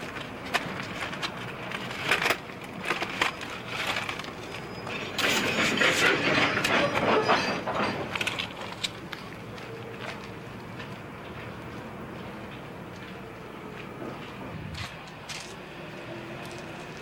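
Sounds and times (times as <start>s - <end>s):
paper cards rustling: 0.0s - 4.8s.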